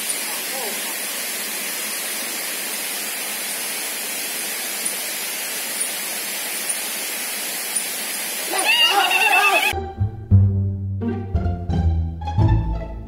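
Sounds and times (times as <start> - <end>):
water rushing along channel: 0.0 - 9.8.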